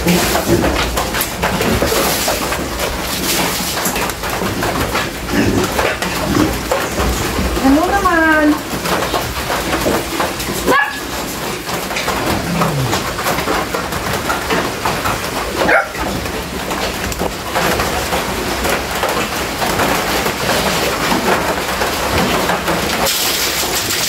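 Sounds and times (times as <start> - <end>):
pigs grunting and squealing: 0.0 - 2.6, 4.3 - 7.4, 12.0 - 13.8.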